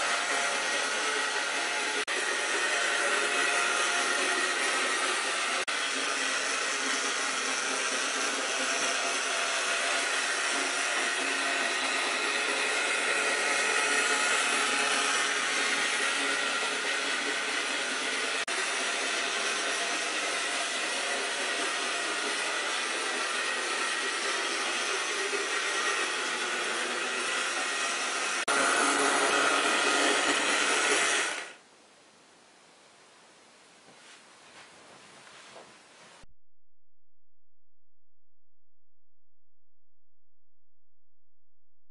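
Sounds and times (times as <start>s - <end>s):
model train motor whirring: 0.0s - 31.6s.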